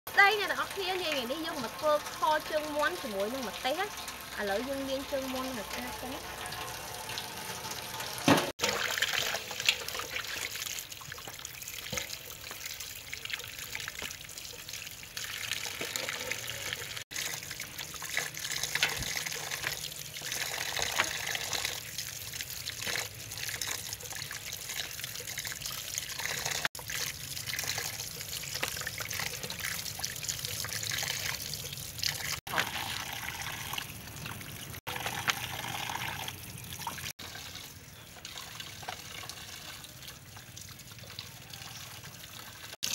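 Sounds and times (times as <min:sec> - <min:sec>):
tap water splashing into basin: 0:08.2 - 0:16.5.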